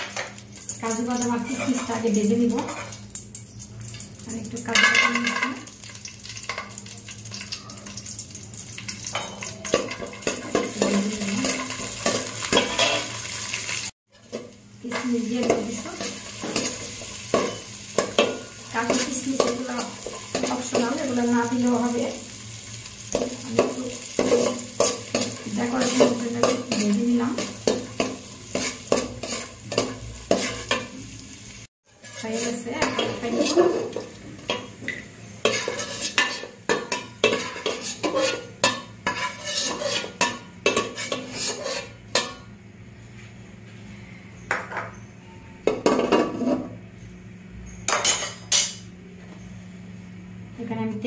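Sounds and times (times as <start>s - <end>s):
nuts sizzling in ghee: 0.0s - 42.5s
utensils scraping aluminium pot: 31.9s - 34.0s, 35.5s - 42.0s.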